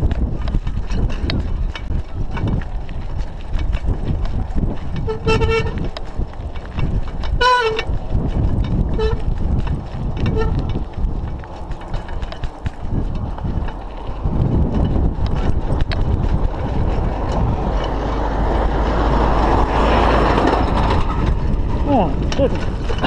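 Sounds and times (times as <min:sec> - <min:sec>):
bicycle rattling over dirt road: 0:00.0 - 0:23.0
wind on microphone: 0:00.0 - 0:23.0
vehicle horn tooting: 0:05.0 - 0:05.9, 0:07.4 - 0:07.9, 0:08.9 - 0:09.2, 0:10.3 - 0:10.6.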